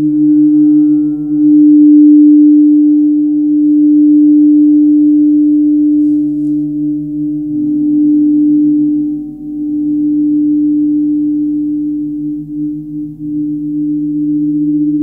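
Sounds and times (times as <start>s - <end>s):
gong humming drone: 0.0s - 15.0s.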